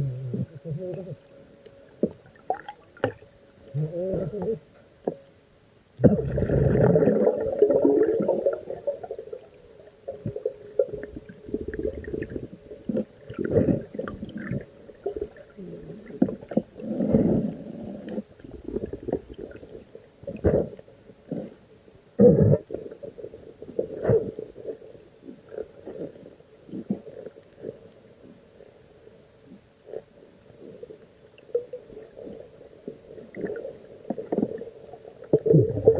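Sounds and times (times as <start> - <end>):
swirling underwater water noise: 6.0 - 20.8.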